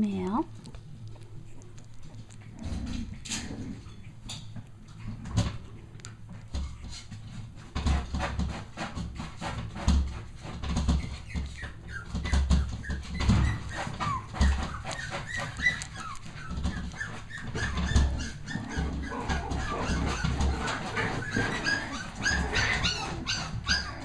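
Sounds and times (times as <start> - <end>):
puppies whimpering: 10.8 - 24.0.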